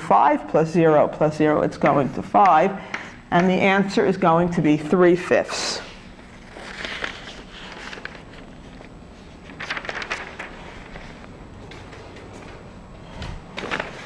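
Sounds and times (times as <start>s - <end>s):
footsteps on classroom floor: 10.4s - 14.0s.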